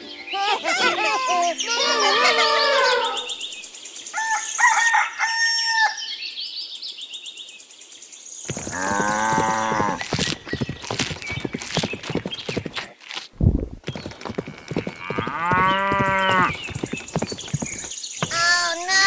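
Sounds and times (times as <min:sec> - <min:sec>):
faint bird chirps: 0:00.0 - 0:08.8
rooster crowing: 0:04.2 - 0:06.1
long horse-like animal call: 0:08.5 - 0:12.9, 0:14.0 - 0:17.9
chirping and clucking calls: 0:13.9 - 0:19.0.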